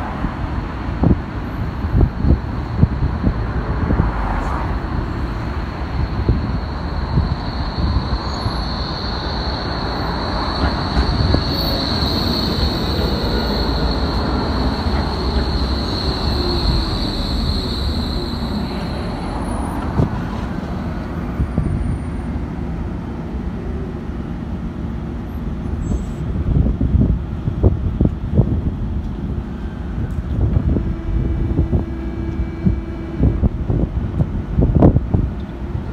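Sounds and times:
wind buffeting microphone: 0.0s - 22.7s, 26.2s - 35.9s
tram wheels rumbling on rails: 0.0s - 35.9s
high-pitched tram squeal: 1.4s - 22.8s, 25.2s - 26.4s, 29.4s - 34.1s.

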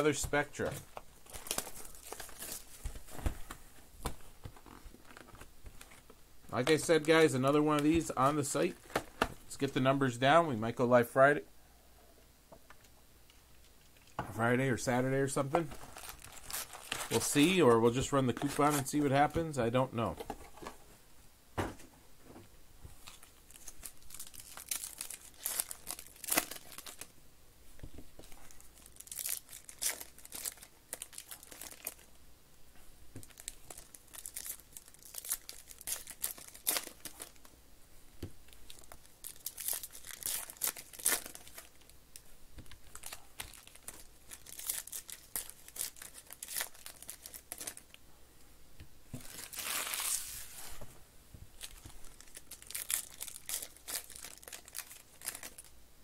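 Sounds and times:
foil wrappers crinkling: 1.2s - 3.3s, 15.6s - 19.3s, 23.0s - 27.1s, 28.2s - 32.1s, 33.2s - 37.5s, 38.6s - 41.9s, 42.7s - 48.0s, 49.2s - 50.6s, 51.6s - 55.7s
packs being torn open: 1.3s - 2.9s, 15.9s - 17.5s, 23.1s - 27.1s, 28.8s - 32.1s, 33.2s - 37.4s, 38.7s - 41.9s, 42.8s - 47.9s, 49.2s - 50.4s, 51.6s - 55.7s.

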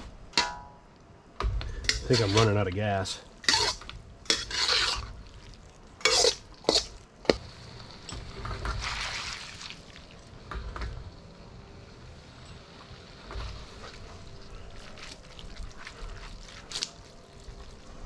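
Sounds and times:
metal utensils scraping a wok: 1.8s - 2.6s, 3.4s - 5.2s, 6.0s - 7.0s.

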